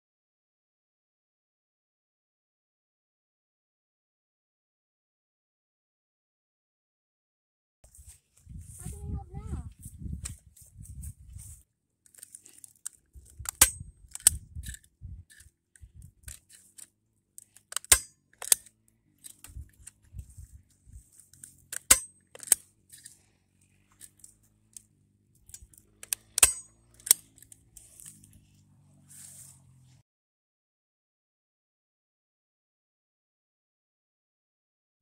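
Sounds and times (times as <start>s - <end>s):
wire handling noise: 9.7s - 28.7s
staple gun snapping: 13.4s - 15.5s, 16.2s - 18.7s, 21.7s - 23.1s, 25.5s - 28.1s.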